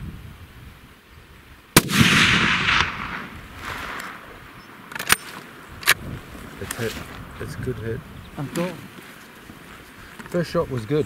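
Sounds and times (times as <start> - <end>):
rifle shot echoing: 1.8 - 6.0.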